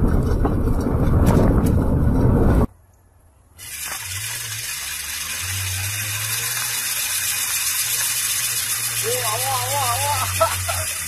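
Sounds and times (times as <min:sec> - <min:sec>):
loud rumbling: 0:00.0 - 0:02.7
steady hiss: 0:03.6 - 0:11.0.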